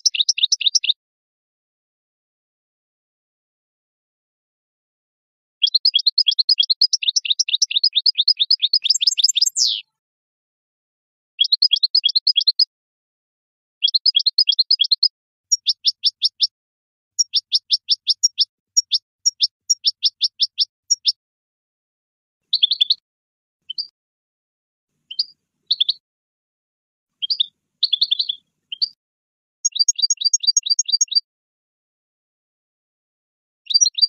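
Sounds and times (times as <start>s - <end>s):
goldfinch singing: 0.0s - 1.0s, 5.6s - 9.9s, 11.4s - 12.7s, 13.8s - 16.5s, 17.2s - 21.2s, 22.5s - 23.0s, 25.1s - 26.0s, 27.2s - 29.0s, 29.6s - 31.2s, 33.7s - 34.0s.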